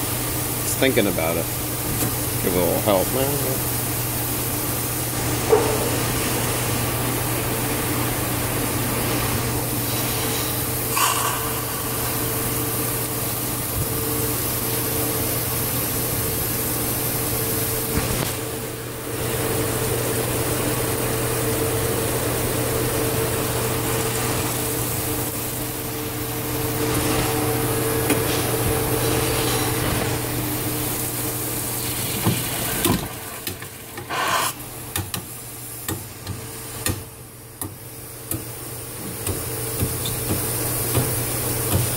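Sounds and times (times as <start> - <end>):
steam and water hissing rush: 5.9 - 18.5, 28.5 - 34.7.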